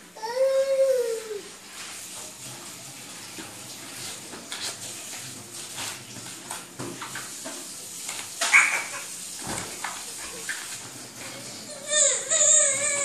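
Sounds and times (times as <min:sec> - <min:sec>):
toddler vocal sounds: 0:00.2 - 0:01.5, 0:11.2 - 0:13.0
high-pitched child squeal: 0:11.7 - 0:13.0.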